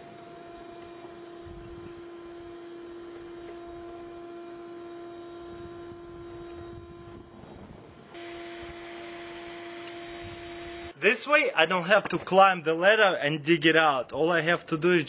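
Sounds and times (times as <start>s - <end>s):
shop vacuum motor whine: 0.0s - 11.0s.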